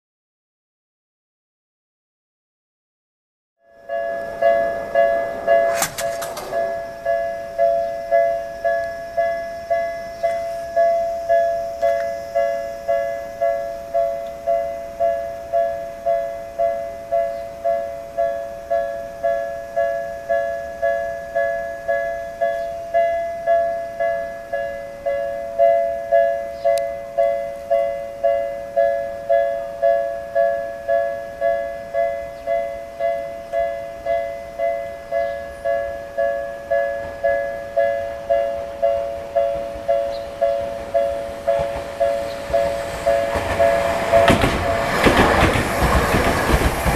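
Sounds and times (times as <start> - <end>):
level-crossing warning bell dinging: 3.6 - 46.9
sharp clatter: 5.6 - 6.9.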